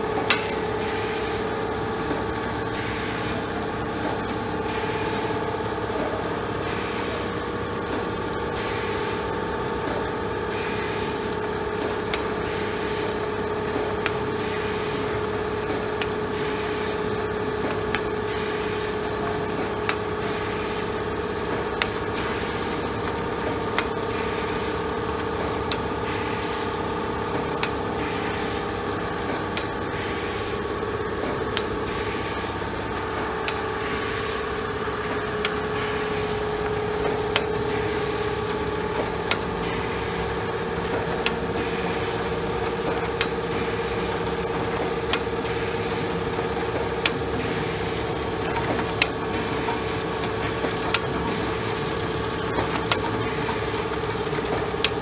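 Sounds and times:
machine motor hum: 0.0 - 55.0
sharp machine clicks: 0.0 - 55.0.

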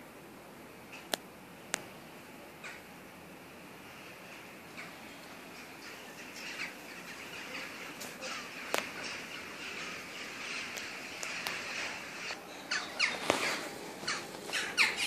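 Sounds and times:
birds chirping: 1.9 - 15.0
parakeet calls: 4.2 - 15.0
harsh squawks: 5.6 - 15.0.

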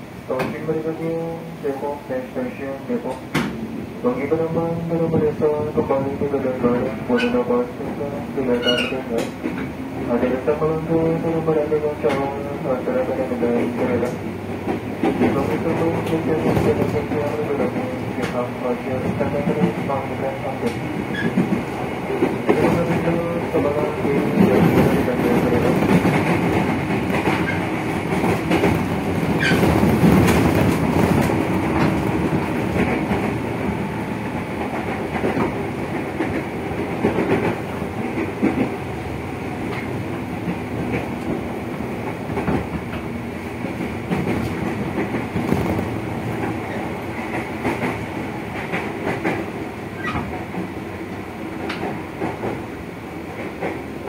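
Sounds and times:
train motors humming: 0.0 - 54.0
steel wheels rumbling: 13.5 - 50.6.

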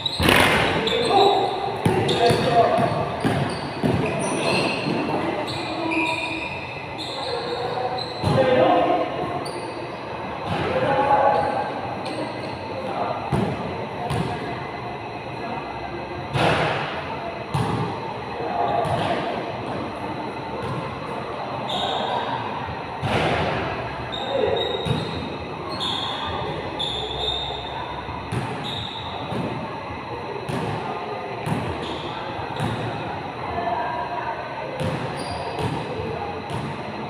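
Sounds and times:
shoes squeaking on floor: 0.0 - 8.4, 24.1 - 27.7, 28.6 - 29.2, 35.2 - 35.8
basketball bouncing on hard court: 14.1 - 14.3, 17.5 - 17.8.

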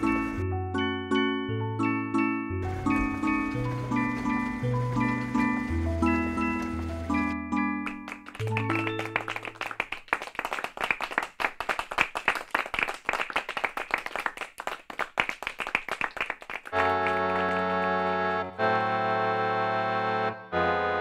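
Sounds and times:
short melodic music phrase: 0.0 - 9.6
sustained keyboard chords: 0.0 - 9.7, 16.7 - 21.0
audience applauding: 2.6 - 18.4.

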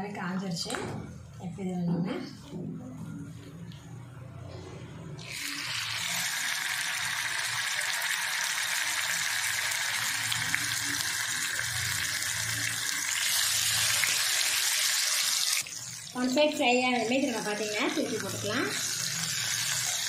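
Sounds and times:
chicken sizzling in hot oil: 5.2 - 20.0.

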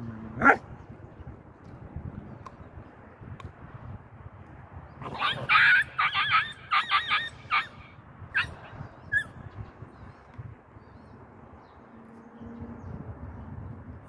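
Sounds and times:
puppy yipping: 5.2 - 7.8, 8.4 - 9.4.

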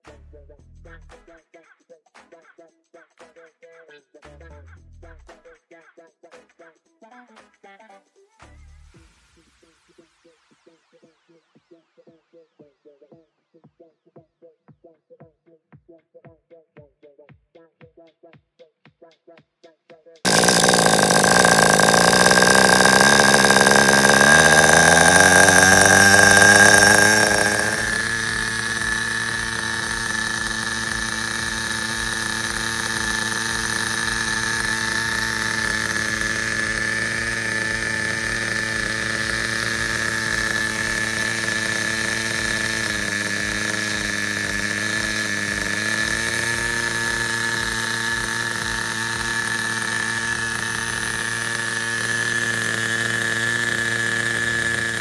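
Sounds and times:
high whine: 20.3 - 55.0
model car engine running: 20.3 - 55.0.

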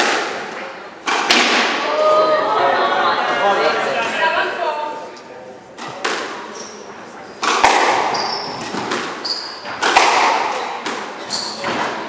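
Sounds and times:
squash ball cracking off rackets: 7.4 - 12.0
shoes squeaking on wooden floor: 8.0 - 9.9, 11.2 - 12.0.

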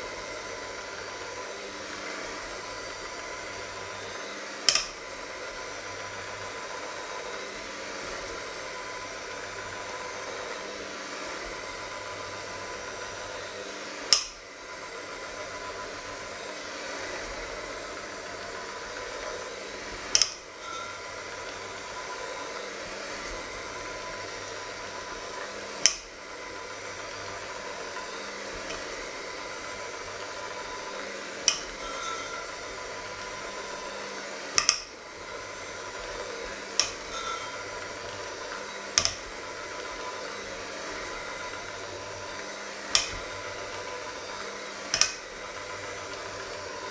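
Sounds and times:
electric hand mixer whirring: 0.0 - 46.9.

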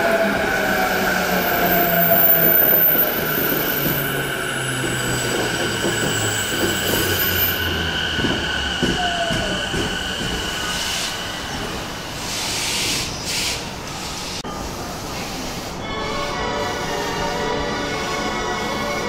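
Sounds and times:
steady high squeal: 0.0 - 13.2.

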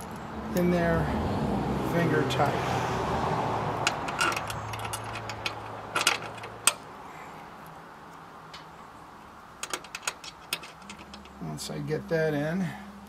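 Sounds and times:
metal bolts clicking and clinking: 3.8 - 6.9, 9.6 - 11.4.

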